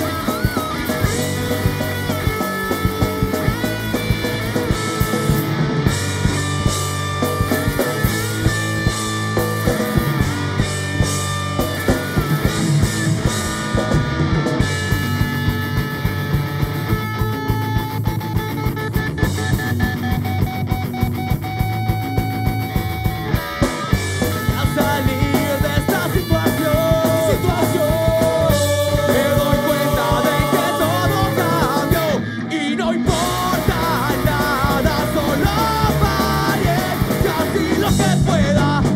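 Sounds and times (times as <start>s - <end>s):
rock band playing live: 0.0s - 38.9s
man singing: 24.3s - 38.9s.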